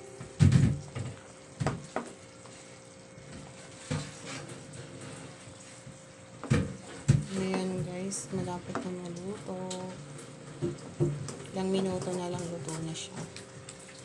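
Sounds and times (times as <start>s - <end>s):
sauce simmering: 8.0s - 14.0s.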